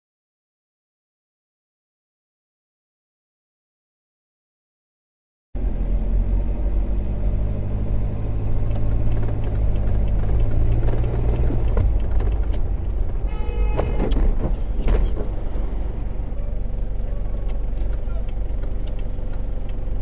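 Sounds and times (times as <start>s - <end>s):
car engine running: 5.6s - 20.0s
car horn: 13.2s - 15.2s, 16.2s - 18.4s.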